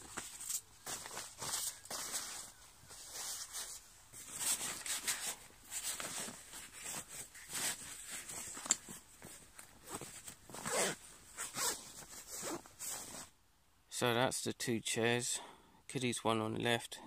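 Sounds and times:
nylon fabric rustling and scraping: 0:00.0 - 0:13.4.

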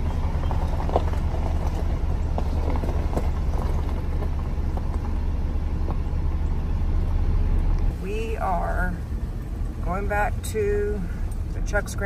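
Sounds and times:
knocks and rattles: 0:00.0 - 0:05.2
vehicle rumbling on rough track: 0:00.0 - 0:12.0.

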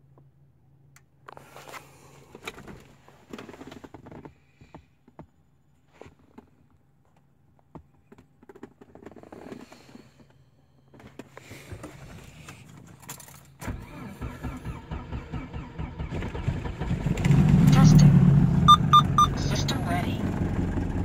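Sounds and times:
engine starter cranking: 0:13.6 - 0:19.2
car engine running: 0:14.6 - 0:21.0.

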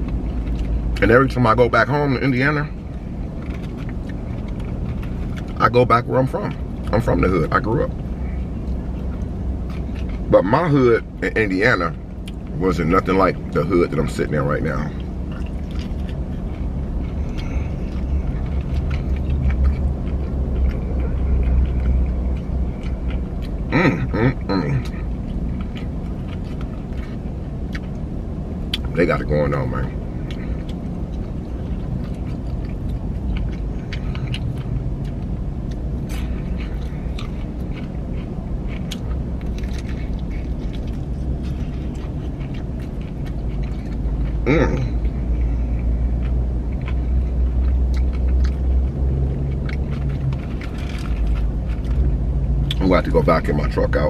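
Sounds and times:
chewing fried chicken: 0:00.0 - 0:54.0
engine idling rumble: 0:00.0 - 0:54.0
low hum in truck cab: 0:00.0 - 0:54.0.

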